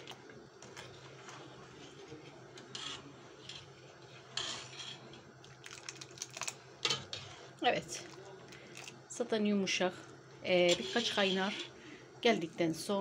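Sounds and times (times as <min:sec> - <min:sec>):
metal ladle stirring in pot: 0:00.6 - 0:09.0, 0:10.6 - 0:11.8.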